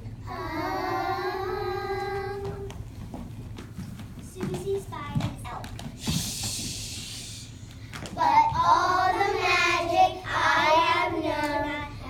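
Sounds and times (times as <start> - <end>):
young children singing: 0.2 - 2.8, 8.2 - 12.0.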